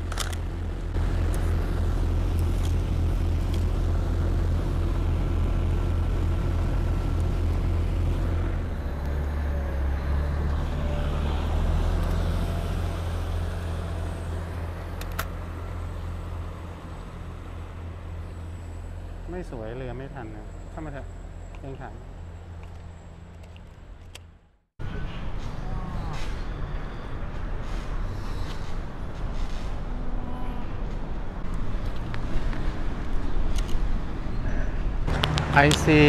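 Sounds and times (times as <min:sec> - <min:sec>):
boat engine humming: 0:00.0 - 0:19.3.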